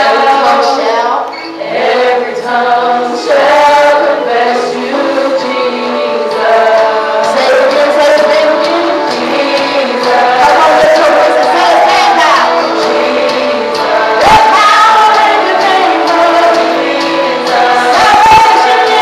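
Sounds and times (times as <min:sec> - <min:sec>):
group singing worship song: 0:00.0 - 0:19.0.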